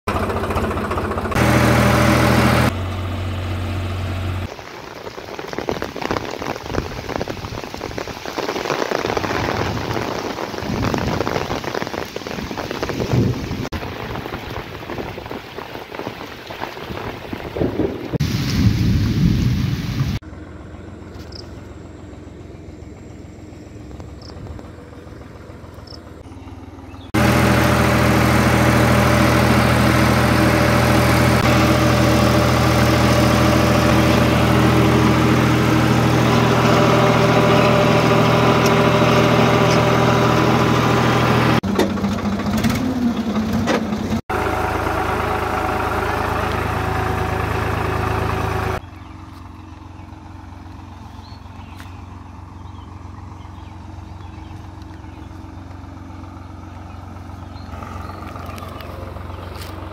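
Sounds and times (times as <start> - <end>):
tractor diesel engine running: 0.0 - 59.9
deep rumbles: 0.1 - 59.9
heavy rain on field: 4.5 - 20.2, 27.2 - 41.6, 44.3 - 48.8.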